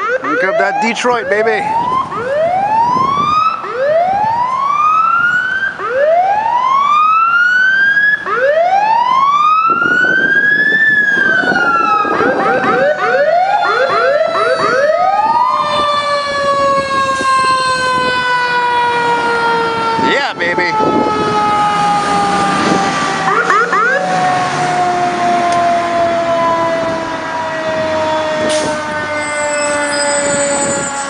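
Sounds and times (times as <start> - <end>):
fire truck siren wailing: 0.0 - 31.0
second siren with quick sweeps: 7.8 - 18.3, 20.0 - 31.0.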